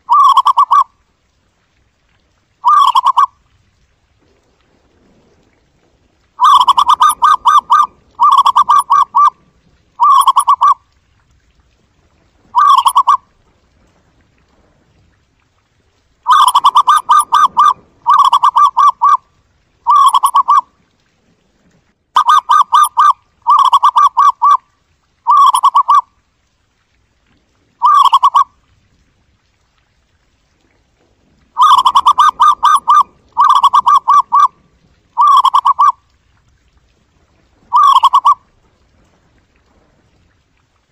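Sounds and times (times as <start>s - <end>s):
dove calling in pulsed notes: 0.0s - 0.9s, 2.6s - 3.4s, 6.4s - 9.4s, 10.0s - 10.8s, 12.5s - 13.2s, 16.2s - 19.2s, 19.8s - 20.7s, 22.2s - 24.6s, 25.2s - 26.1s, 27.8s - 28.5s, 31.6s - 34.6s, 35.2s - 36.0s, 37.7s - 38.4s.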